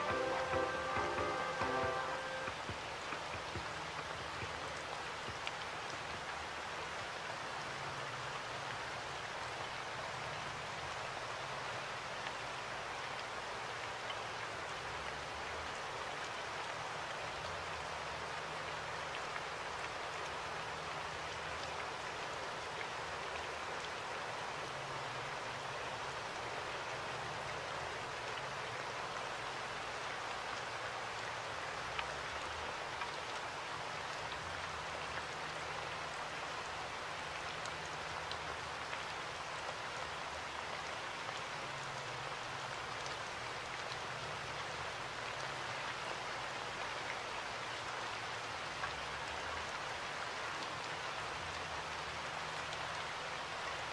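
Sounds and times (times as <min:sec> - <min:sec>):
raindrops ticking: 0:00.0 - 0:06.5
steady rain hiss: 0:00.0 - 0:53.9.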